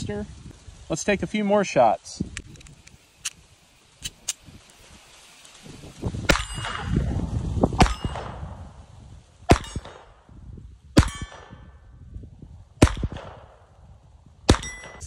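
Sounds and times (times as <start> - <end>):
steel target ringing ping: 6.3 - 7.1, 7.8 - 8.5, 9.5 - 10.2, 11.0 - 11.7, 14.5 - 15.0
pistol shots: 7.8 - 8.4, 9.5 - 10.1, 12.8 - 13.5.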